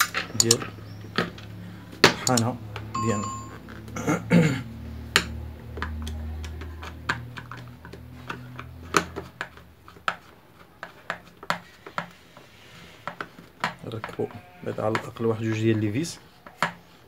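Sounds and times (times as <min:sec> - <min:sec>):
low steady hum: 0:01.6 - 0:04.2
screwdriver clicking and ticking: 0:02.2 - 0:02.5.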